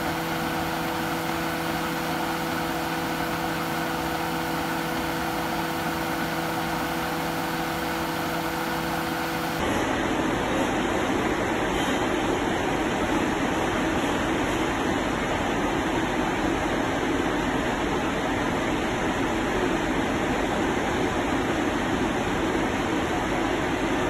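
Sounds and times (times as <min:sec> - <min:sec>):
blower fan rushing air: 0:00.0 - 0:11.6.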